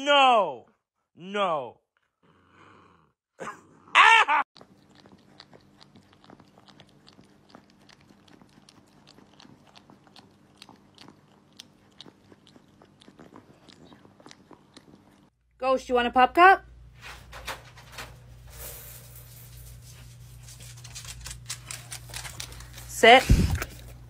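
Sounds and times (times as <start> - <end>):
puppy gnawing chew stick: 4.6 - 15.3, 20.2 - 24.0.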